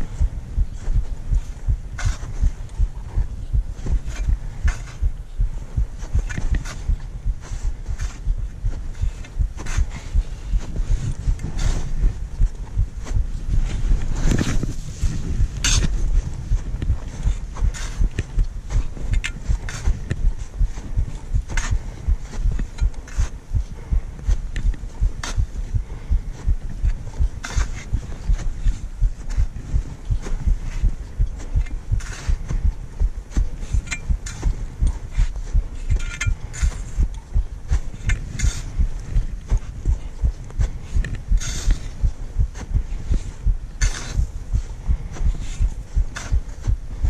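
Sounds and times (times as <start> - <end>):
footsteps thumping: 0.1 - 35.7
clicks and crunches underfoot: 6.0 - 44.3.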